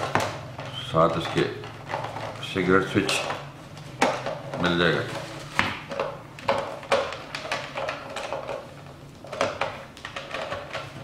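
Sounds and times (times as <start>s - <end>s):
plastic clicks and knocks: 5.5s - 11.0s.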